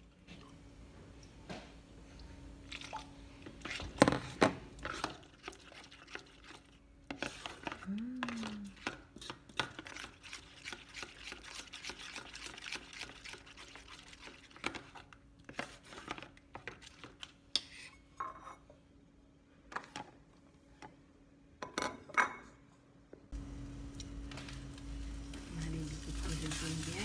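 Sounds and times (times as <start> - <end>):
faint steady hum: 0.0 - 9.5, 13.6 - 27.0
metal spoon stirring thick mixture: 4.8 - 17.9.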